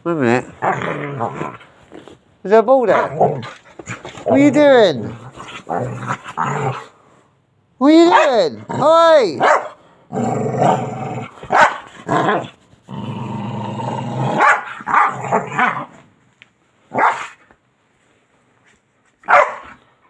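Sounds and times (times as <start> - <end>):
dog growling: 0.2 - 2.2, 2.9 - 7.0, 8.1 - 9.5, 10.1 - 16.0
dog barking: 8.0 - 8.5, 9.4 - 9.8, 11.5 - 12.5, 14.4 - 15.8, 16.9 - 17.4, 19.2 - 19.8.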